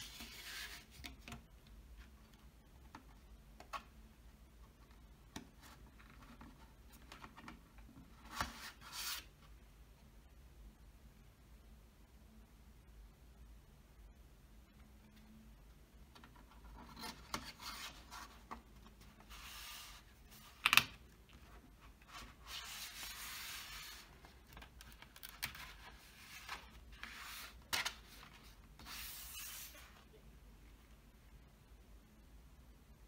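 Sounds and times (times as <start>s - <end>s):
cardboard sliding and rubbing: 0.0s - 1.0s, 16.8s - 20.5s, 21.9s - 24.4s, 25.6s - 30.0s.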